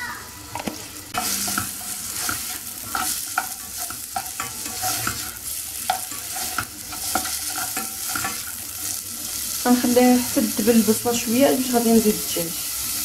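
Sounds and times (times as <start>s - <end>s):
onion sizzling in a pot: 0.0s - 13.0s
spatula scraping a pan: 1.1s - 10.9s.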